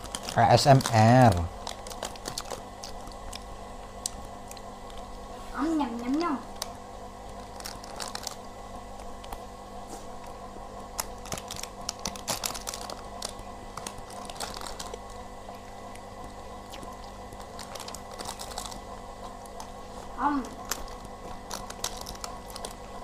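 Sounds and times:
cardboard box and plastic crinkling: 0.0 - 3.4, 7.3 - 8.4, 11.0 - 15.2, 17.4 - 23.0
crunchy chewing: 0.0 - 5.4, 6.0 - 23.0
steady background hum: 0.0 - 23.0.

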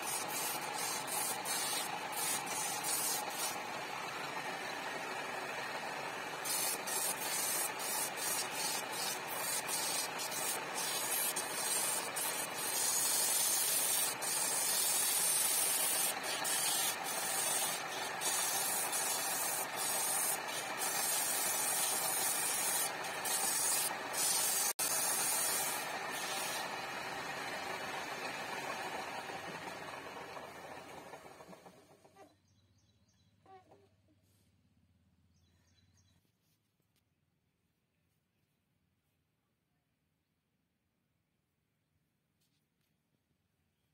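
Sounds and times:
chisel cutting wood on a lathe: 0.0 - 31.9.

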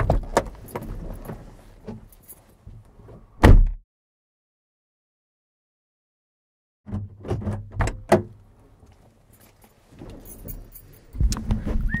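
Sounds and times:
knocks and rattles in car cabin: 0.0 - 2.1, 6.9 - 8.4.

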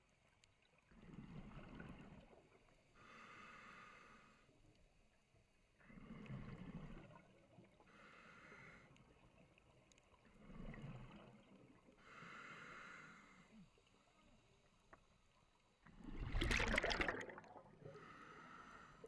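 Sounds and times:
diver breathing through regulator: 12.0 - 13.5, 16.5 - 19.0
bubbling exhale: 16.0 - 18.9.

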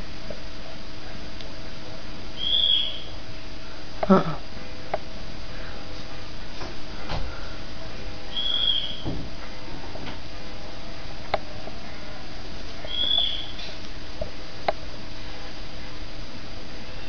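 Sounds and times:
steady background hiss: 0.0 - 17.0
high animal squeak: 8.4 - 9.0, 12.9 - 13.6.

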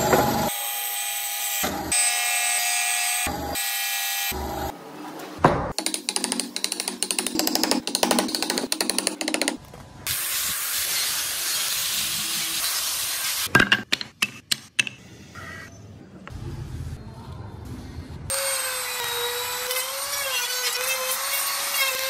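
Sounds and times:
wooden pieces knocking: 13.6 - 15.0.

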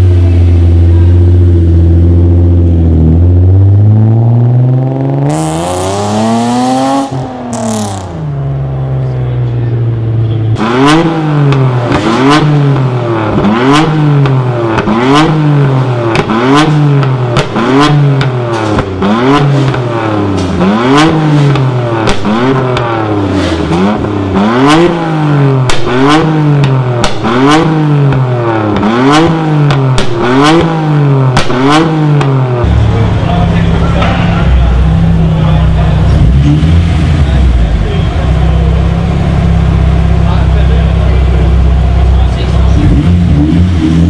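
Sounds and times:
car engine revving: 0.0 - 44.0
exhaust pops and crackles: 10.6 - 24.2, 24.8 - 43.4.

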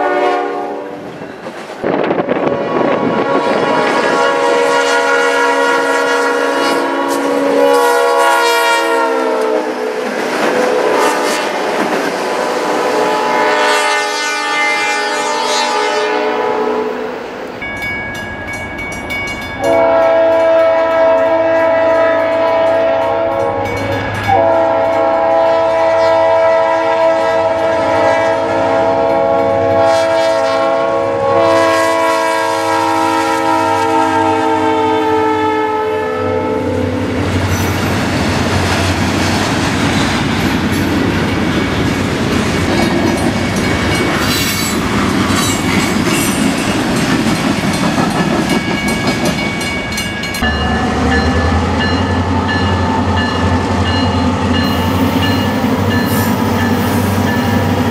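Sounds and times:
locomotive air horn: 0.0 - 1.1, 2.3 - 17.2, 19.6 - 37.0
train rumbling: 0.0 - 57.9.

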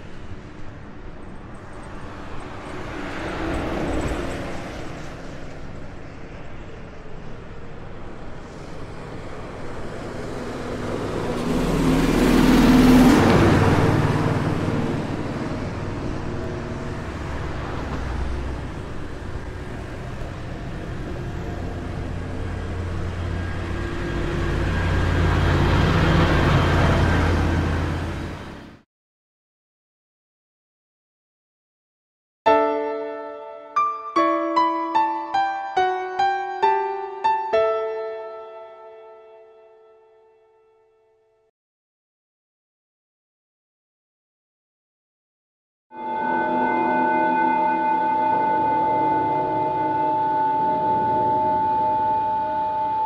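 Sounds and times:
passing vehicles: 0.0 - 28.8, 46.0 - 53.0.

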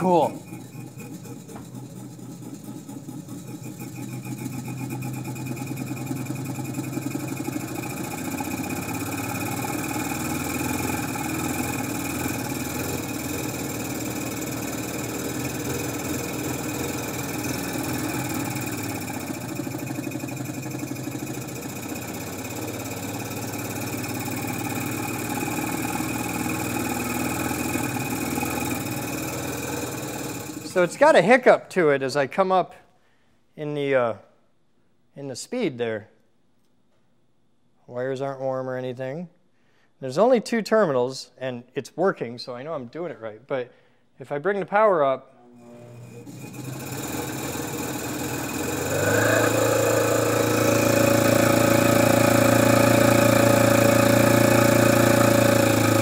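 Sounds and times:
electric motor driving pump: 0.0 - 31.2, 45.6 - 56.0.

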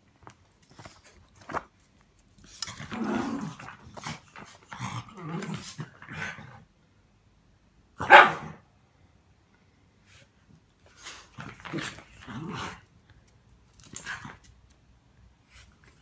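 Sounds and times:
dogs barking: 8.0 - 8.6.

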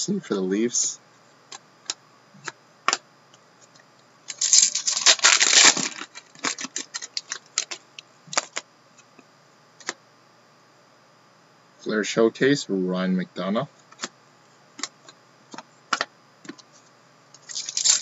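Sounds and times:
wrapper tearing and crinkling: 4.3 - 8.6, 17.4 - 18.0.

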